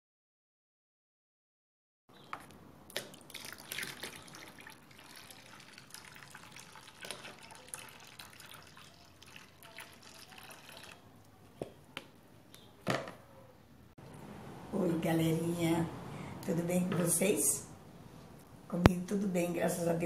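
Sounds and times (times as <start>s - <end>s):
liquid soap pouring: 2.9s - 11.1s
splashing and dripping: 2.9s - 11.1s.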